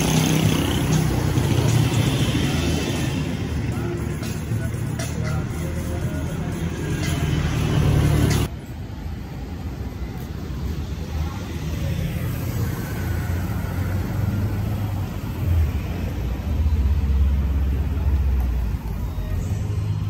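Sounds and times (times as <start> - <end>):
motorcycle passing: 0.0 - 4.1
cars passing: 0.0 - 20.0.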